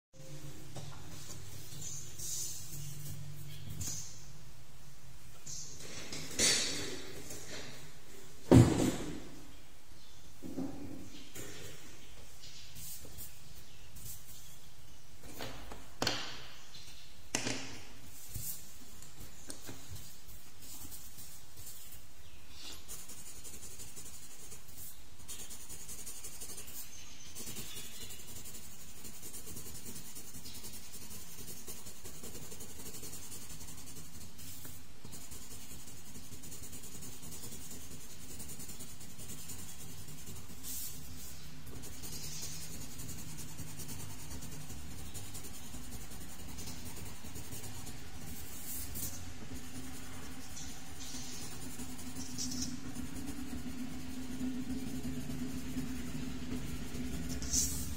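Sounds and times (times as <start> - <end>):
steady low hum: 17.8 - 57.9
pencil scratching on paper: 22.6 - 57.9.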